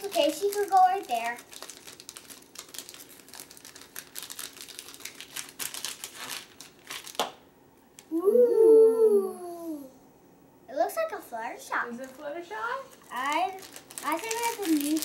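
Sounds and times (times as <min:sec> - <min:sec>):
sharp tear of foil: 0:00.0 - 0:07.2, 0:12.9 - 0:15.0
foil packet crinkling: 0:00.0 - 0:07.4, 0:11.9 - 0:15.0
child's drawn-out voice: 0:08.1 - 0:10.0.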